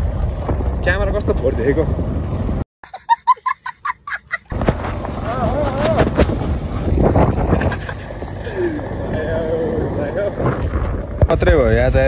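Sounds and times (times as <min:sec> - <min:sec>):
street noise: 0:00.0 - 0:12.0
child laughing: 0:02.8 - 0:04.5
wind on microphone: 0:04.5 - 0:12.0.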